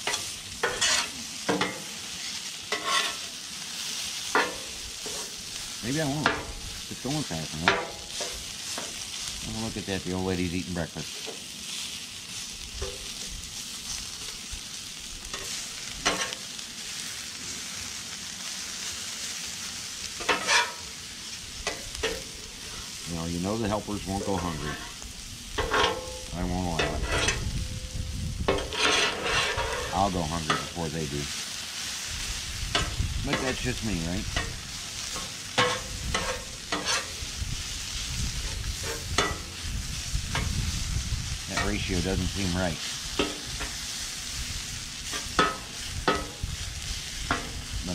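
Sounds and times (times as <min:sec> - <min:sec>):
metal spatula scraping griddle: 0:00.0 - 0:09.8, 0:15.2 - 0:16.4, 0:20.1 - 0:21.0, 0:21.6 - 0:27.6, 0:28.5 - 0:31.0, 0:32.7 - 0:40.7, 0:41.5 - 0:47.6
hash browns sizzling on griddle: 0:00.0 - 0:47.9.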